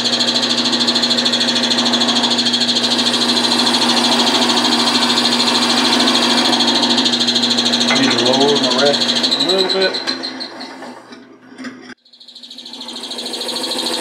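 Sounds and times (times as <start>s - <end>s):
gouge cutting spinning wood: 0.0s - 11.3s, 12.2s - 14.0s
wood lathe humming: 0.0s - 11.4s, 12.2s - 14.0s.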